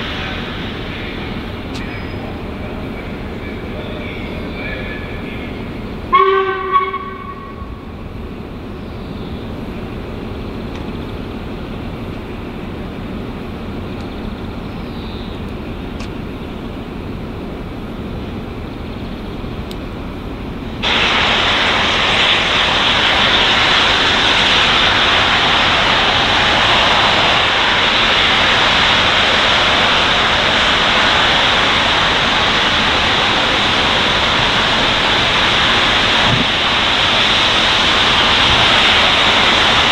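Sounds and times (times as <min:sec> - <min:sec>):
loud hiss of escaping steam: 0:00.0 - 0:10.2, 0:20.5 - 0:39.9
steam rushing: 0:00.0 - 0:39.9.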